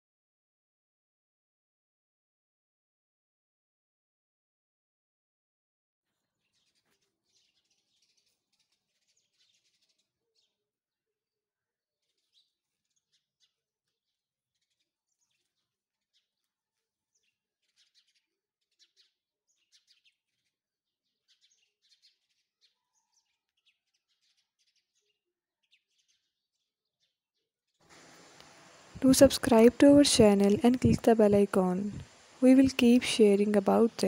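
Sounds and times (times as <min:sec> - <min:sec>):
faint birds chirping: 0:06.2 - 0:10.6, 0:14.6 - 0:34.0.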